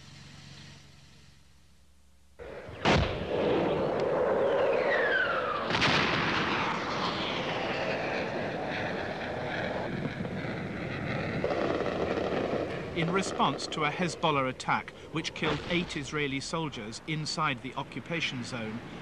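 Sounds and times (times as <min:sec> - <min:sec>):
heavy explosions: 0:02.4 - 0:16.6
rumble and echo of blasts: 0:02.4 - 0:19.0
high falling whistle: 0:02.8 - 0:08.7.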